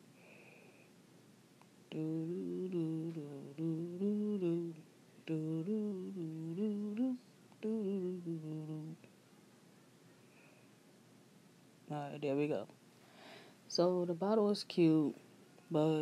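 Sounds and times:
woman humming: 0:01.9 - 0:09.1.

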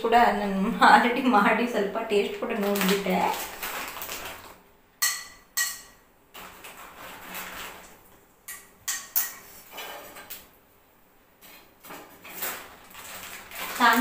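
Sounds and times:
metal skimmer clinking on pan: 0:05.0 - 0:06.0
chips sizzling in hot oil: 0:11.4 - 0:14.0.

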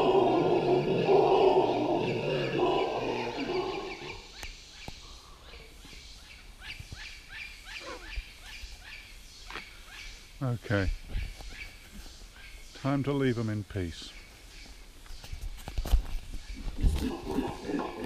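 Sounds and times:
howler monkeys howling: 0:00.0 - 0:04.4, 0:16.6 - 0:18.0.

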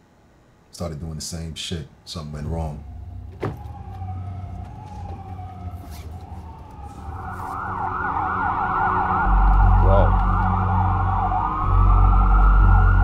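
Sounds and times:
deep low rumble: 0:02.4 - 0:13.0
sirens wailing: 0:02.4 - 0:13.0.

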